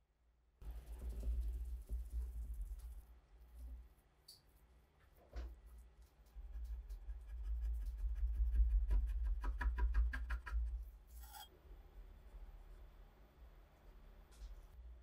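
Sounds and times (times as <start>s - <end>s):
metal putty knife scraping wood: 11.1s - 11.5s.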